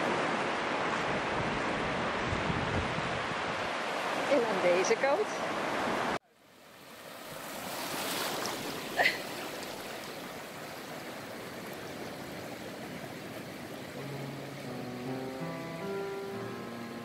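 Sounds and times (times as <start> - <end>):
shallow surf washing: 0.0 - 17.0
music with held notes: 14.0 - 17.0.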